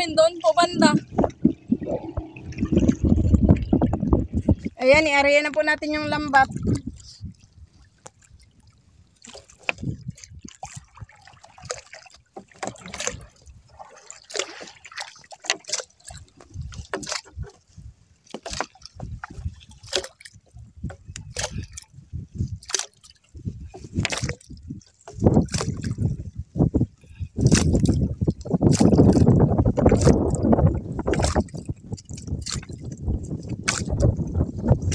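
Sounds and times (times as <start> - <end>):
low rush of water: 0.0 - 5.3, 5.9 - 17.3
net splashing in water: 10.4 - 17.5, 18.3 - 20.3, 22.5 - 23.2, 24.0 - 26.1, 27.4 - 34.9.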